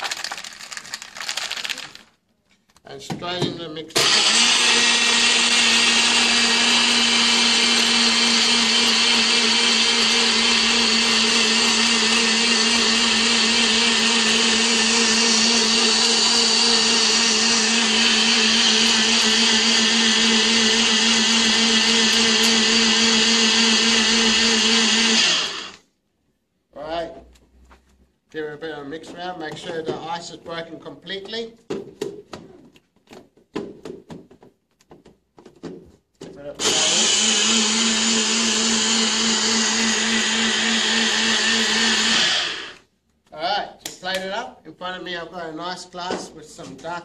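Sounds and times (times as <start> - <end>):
blender motor running: 4.0 - 25.8, 36.6 - 42.9.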